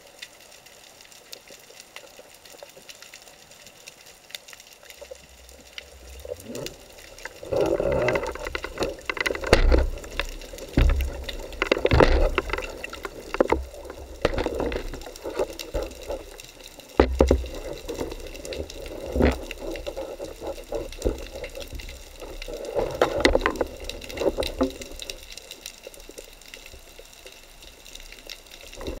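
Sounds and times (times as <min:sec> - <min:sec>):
water sloshing and gurgling: 0:00.6 - 0:29.0
sharp knocks: 0:09.1 - 0:13.1.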